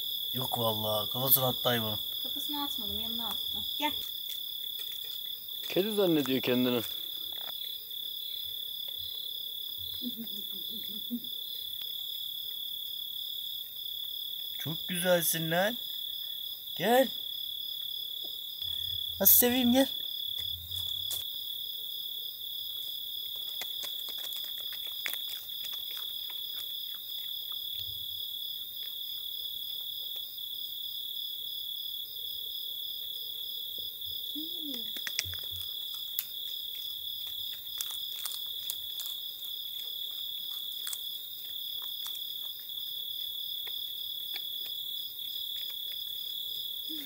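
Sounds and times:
crickets chirping: 0.0 - 47.0.

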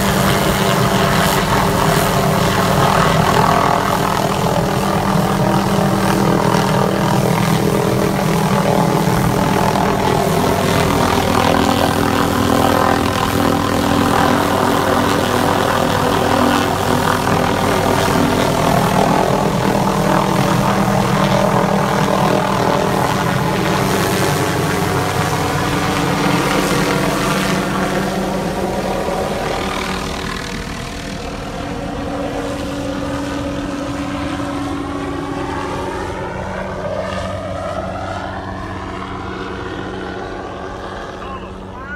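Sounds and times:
helicopter rotor and engine: 0.0 - 41.9
steady high tone: 41.0 - 41.9.

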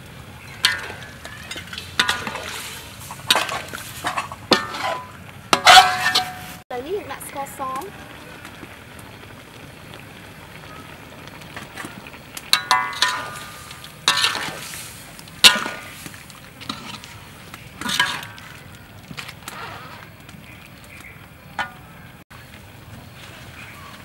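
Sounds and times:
metal ladle clanking against wok: 0.5 - 6.6, 12.5 - 14.7, 15.4 - 16.0, 17.8 - 18.6, 21.6 - 21.9.

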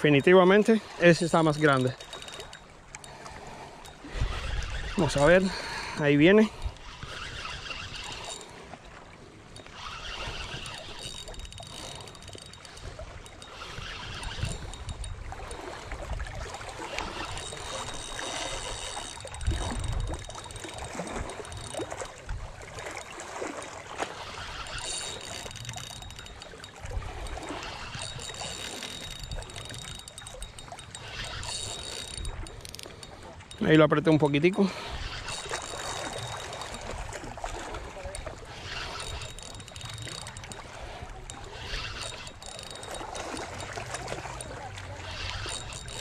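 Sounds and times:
fishing reel whirring: 0.0 - 46.0
water lapping and trickling: 0.0 - 46.0
wind rumbling on microphone: 3.2 - 9.0, 12.8 - 23.3.

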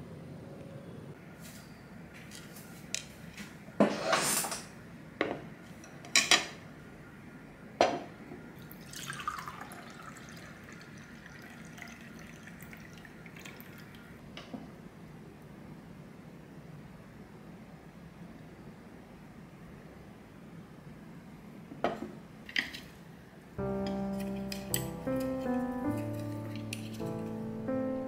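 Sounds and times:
drink pouring into glass: 8.6 - 14.2
glass and tableware clinking: 23.9 - 27.1.

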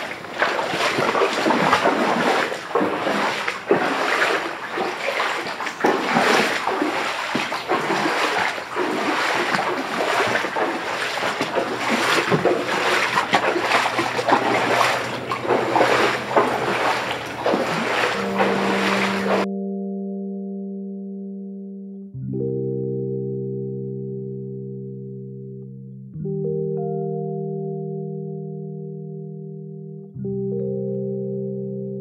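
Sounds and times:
footsteps wading through water: 0.0 - 19.5.

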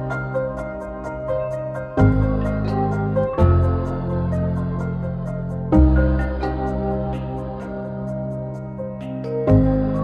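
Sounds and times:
soft new-age music: 0.0 - 10.0.

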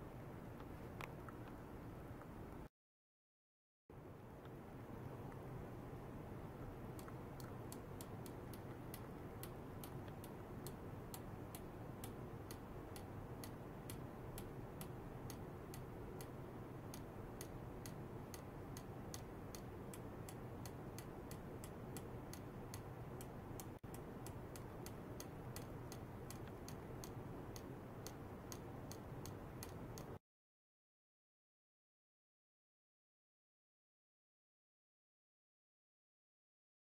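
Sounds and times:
steady low hum: 3.9 - 30.2
faint high ticking: 6.6 - 30.2.

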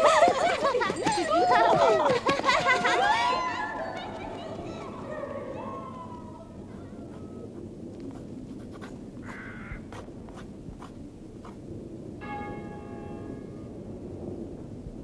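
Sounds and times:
bell ringing: 12.2 - 13.7.

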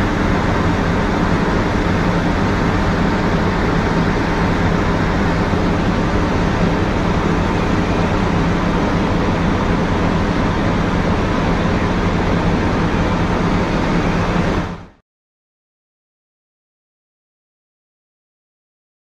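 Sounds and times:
machinery rushing din: 0.0 - 14.9.

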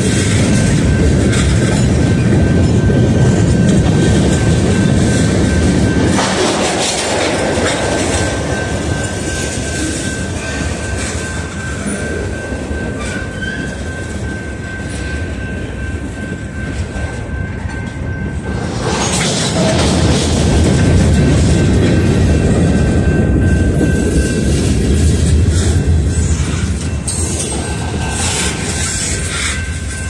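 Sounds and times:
freight train rolling past: 0.0 - 30.0
wheels clacking over rail joints: 0.0 - 30.0
high-pitched squeal: 22.4 - 30.0.

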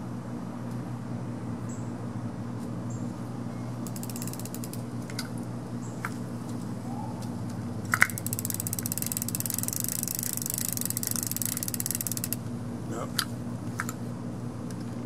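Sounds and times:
steady low hum: 0.0 - 15.0
fishing reel clicking: 3.8 - 4.8, 7.9 - 12.4.

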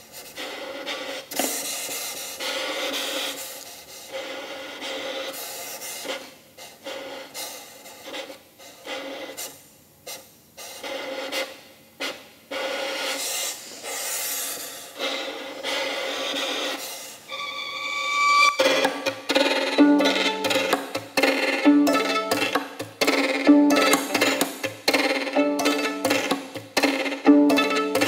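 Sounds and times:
violin bowed unpitched noise: 17.3 - 28.0.

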